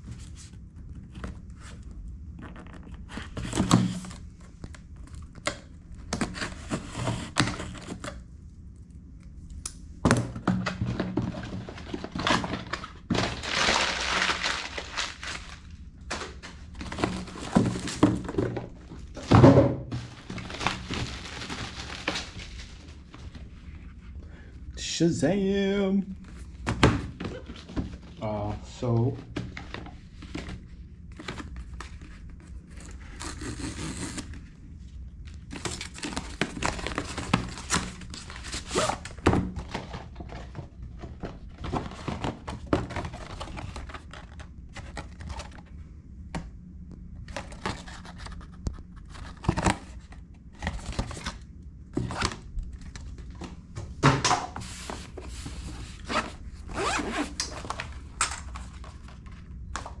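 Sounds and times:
rustling and tearing packaging: 10.9s - 19.3s, 19.9s - 23.6s, 29.5s - 34.5s, 35.3s - 45.7s, 47.3s - 51.4s, 54.6s - 60.0s.

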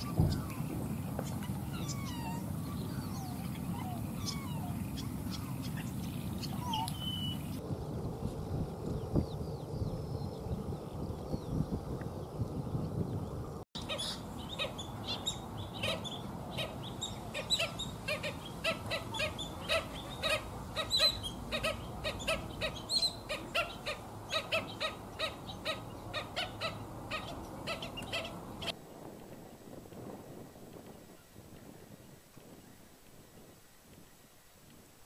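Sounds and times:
flock of birds calling: 0.0s - 7.6s, 13.8s - 28.8s.

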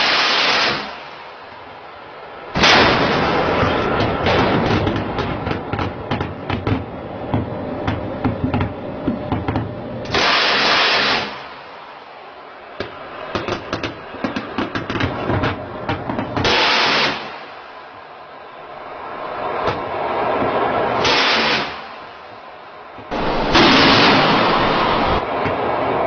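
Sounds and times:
loud rushing burst: 0.0s - 1.5s, 2.3s - 6.1s, 10.1s - 15.8s, 16.4s - 22.2s, 23.1s - 26.0s
ship guns firing: 2.6s - 6.4s, 10.1s - 11.6s, 16.4s - 17.5s, 23.1s - 25.2s.

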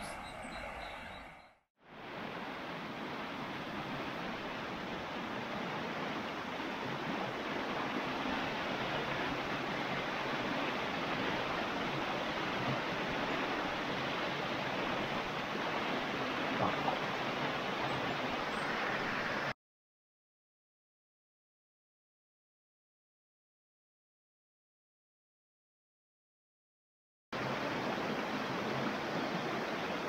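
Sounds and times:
flowing river water: 0.0s - 19.6s, 27.4s - 30.0s.

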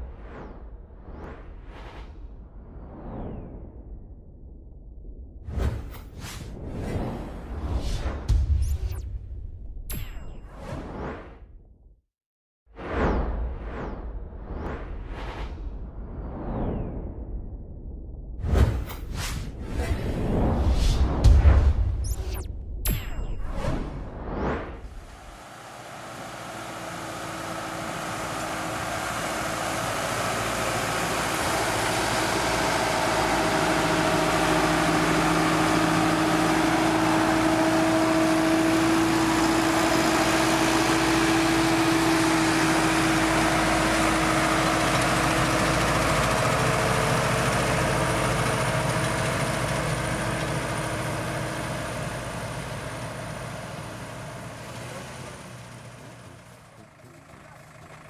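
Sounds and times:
tractor diesel engine under load: 25.3s - 58.0s.

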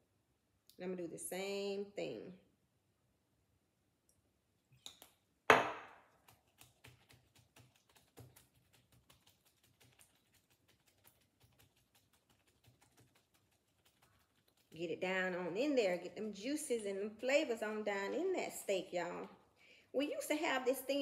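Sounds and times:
glass bottle knocking on stone: 5.5s - 5.9s
hands patting raw meat: 6.1s - 14.8s.

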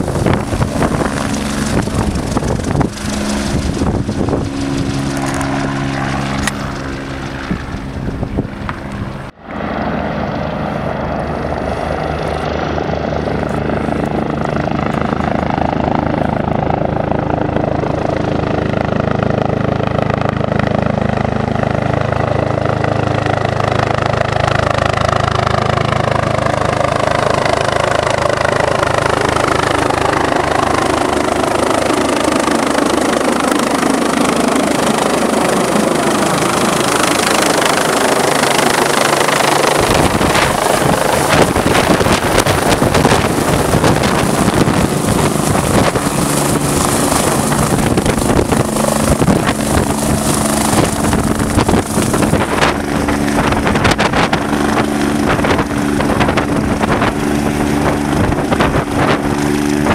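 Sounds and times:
turbine whine: 0.0s - 16.5s, 28.2s - 59.9s
helicopter rotor beat: 0.0s - 59.9s
rotor downwash buffeting microphone: 34.1s - 59.9s.

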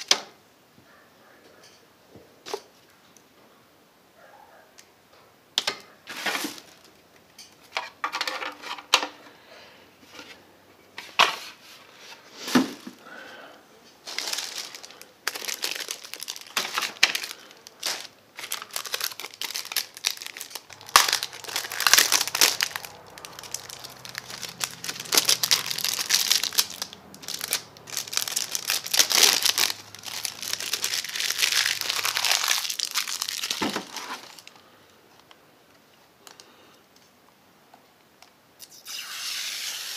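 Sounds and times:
plastic crinkling and rustling: 6.0s - 7.0s, 11.0s - 13.0s, 14.0s - 35.4s.

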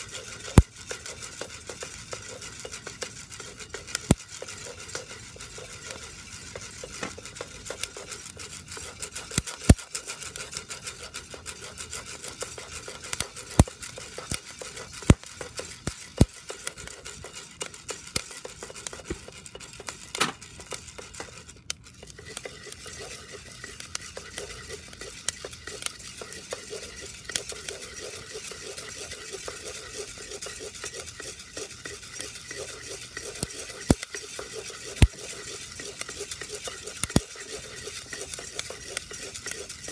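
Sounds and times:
coffee beans rustling in a pot: 0.0s - 39.9s.

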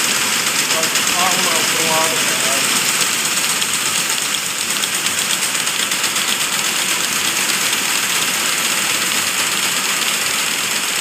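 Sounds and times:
knitting machine hiss: 0.0s - 5.3s
knitting machine clatter: 0.0s - 11.0s.

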